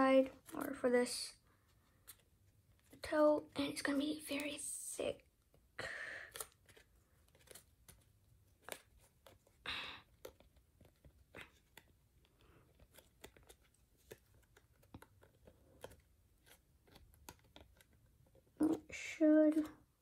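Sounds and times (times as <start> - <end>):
paper crinkling being folded: 6.2 - 19.8.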